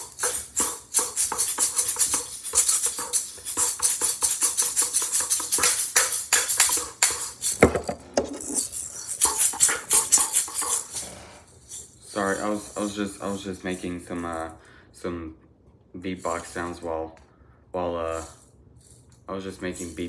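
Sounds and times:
mouth beatbox sounds: 0:00.0 - 0:07.4, 0:09.1 - 0:11.1
shakers rattling: 0:00.0 - 0:14.6, 0:16.1 - 0:17.0, 0:18.0 - 0:20.0.

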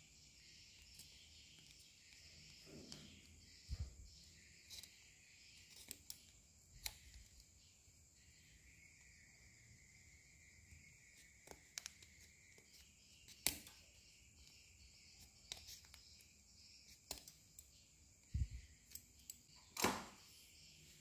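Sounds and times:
scissors snipping plastic pipe: 0:05.7 - 0:07.3, 0:13.3 - 0:13.8.

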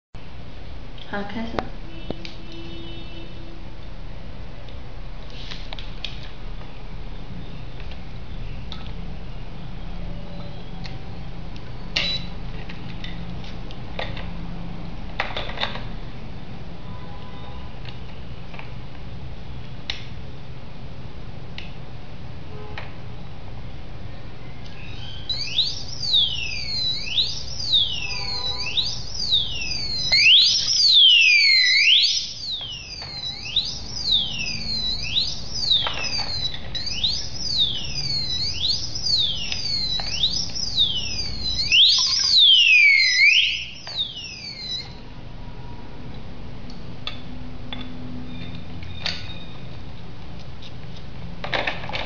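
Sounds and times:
shrill warbling alarm siren: 0:24.9 - 0:45.0.

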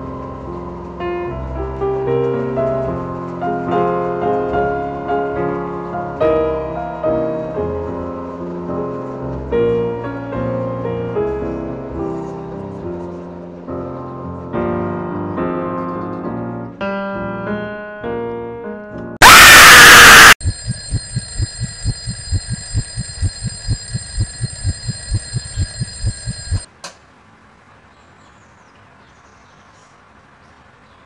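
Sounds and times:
loud noise burst: 0:19.2 - 0:23.3
pulsing alarm tone: 0:19.2 - 0:26.7.

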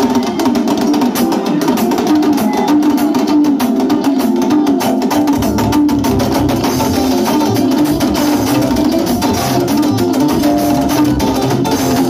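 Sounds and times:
fast dense percussion: 0:00.0 - 0:12.0
sustained keyboard chords: 0:04.6 - 0:12.0
bass notes: 0:05.4 - 0:12.0.

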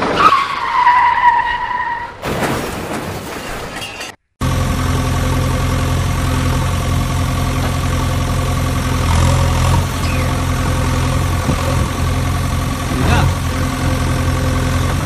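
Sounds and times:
engine idling: 0:04.4 - 0:15.0.

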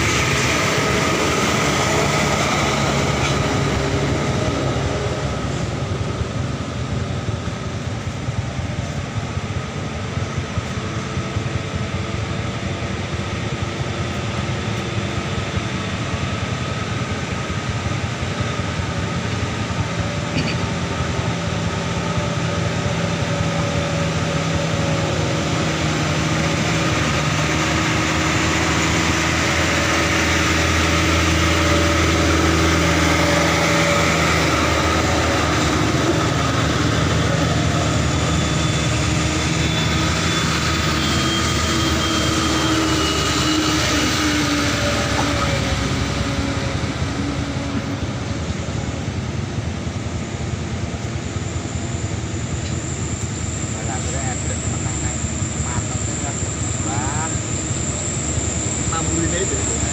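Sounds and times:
diesel truck engines running: 0:00.0 - 0:59.9.

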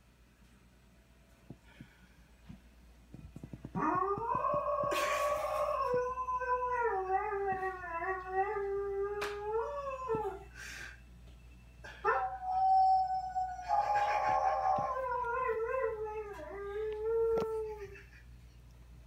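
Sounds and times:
dog howling: 0:12.0 - 0:17.7.

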